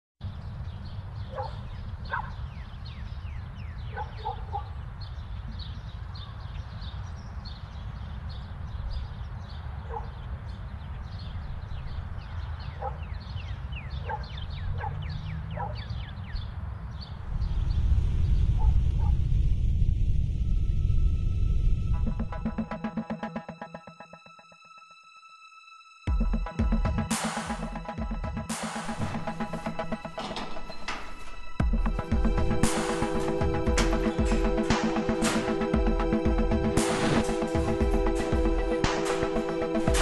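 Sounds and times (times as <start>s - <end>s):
small birds chirping: 0.2s - 19.4s
low rumble: 17.2s - 23.0s.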